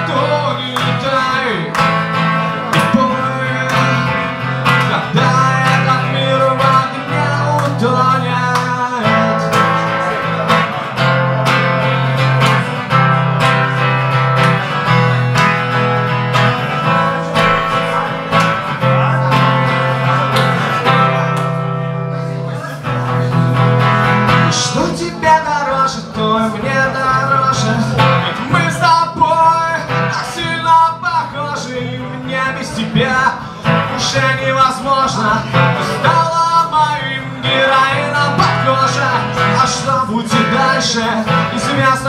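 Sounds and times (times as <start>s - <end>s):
acoustic guitar strumming: 0.0s - 42.0s
low bass notes: 10.8s - 22.2s.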